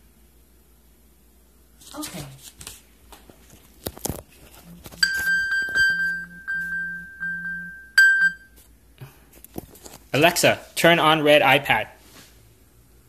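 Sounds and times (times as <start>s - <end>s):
phone high bell-like pings: 5.0s - 8.6s.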